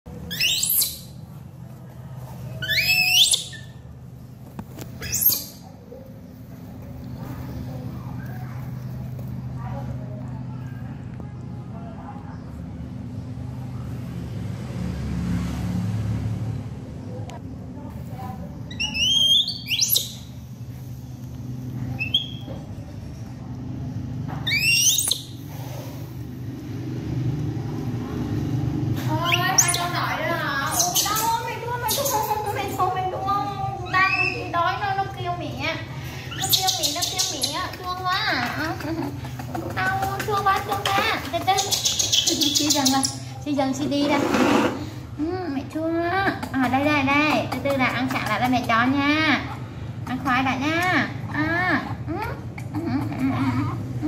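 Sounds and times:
baby monkey squealing: 0.3s - 1.2s, 2.6s - 3.9s, 5.0s - 5.7s, 18.7s - 20.3s, 22.0s - 22.5s, 24.4s - 25.4s, 29.1s - 32.8s, 33.8s - 34.7s, 36.2s - 40.1s, 40.8s - 43.4s
low rumbling hum: 16.2s - 44.1s.

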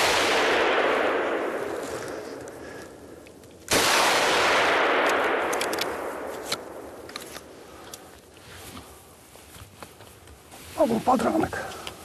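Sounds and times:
gunshot echoing: 0.0s - 2.5s, 3.7s - 7.1s.

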